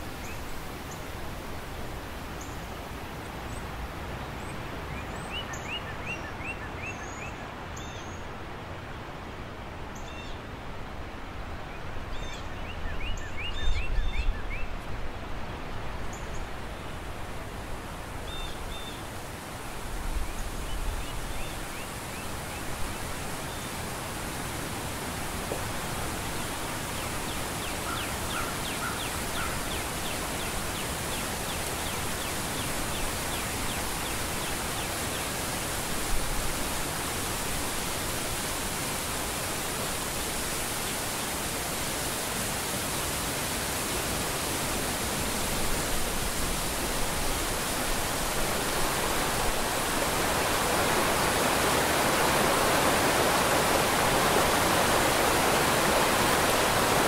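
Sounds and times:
waterfall rushing: 0:16.5 - 0:57.0.

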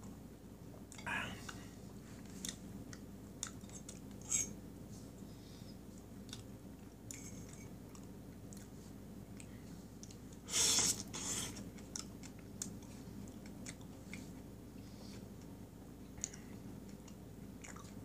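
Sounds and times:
person chewing: 0:07.1 - 0:14.4, 0:16.2 - 0:18.0.

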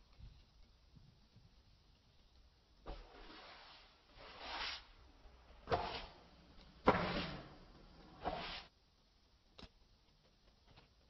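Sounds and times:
sand squished with grainy swish: 0:02.9 - 0:05.0, 0:05.6 - 0:06.2, 0:08.1 - 0:08.7.

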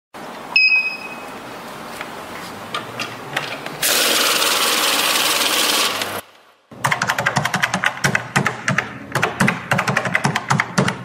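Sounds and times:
cash register bell ding: 0:00.6 - 0:01.3
loud steady mechanical noise: 0:01.4 - 0:06.3.

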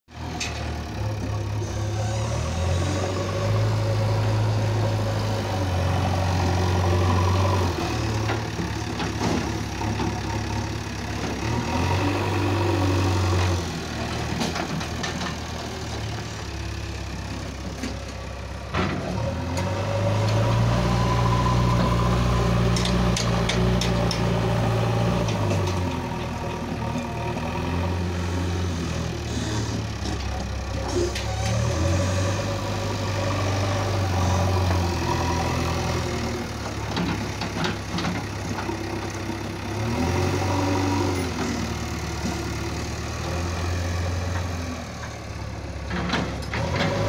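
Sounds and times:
diesel engine revving: 0:00.2 - 0:47.0.

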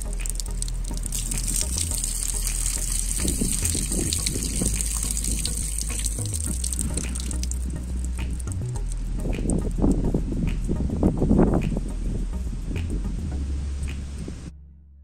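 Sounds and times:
water splashing on ground: 0:00.0 - 0:09.6.

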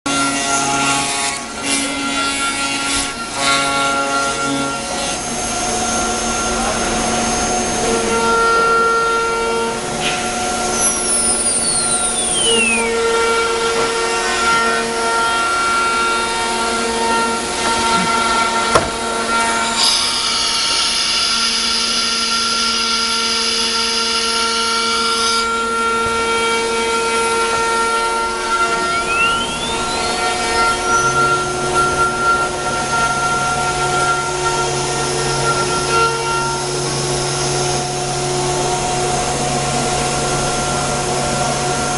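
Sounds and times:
router spindle whine cutting wood: 0:00.1 - 0:41.9
hiss: 0:19.6 - 0:25.5.

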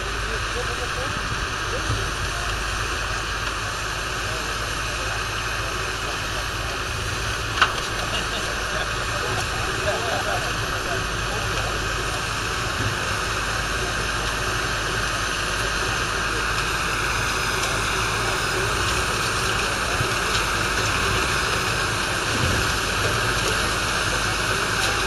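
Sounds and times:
constant rushing noise: 0:00.0 - 0:25.0
tractor diesel engine running: 0:00.0 - 0:25.0.

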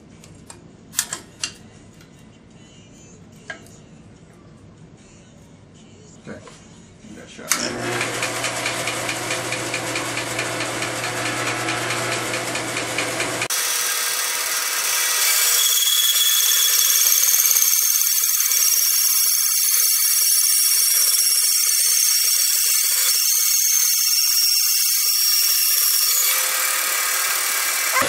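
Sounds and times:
bandsaw cutting wood: 0:07.5 - 0:28.0.

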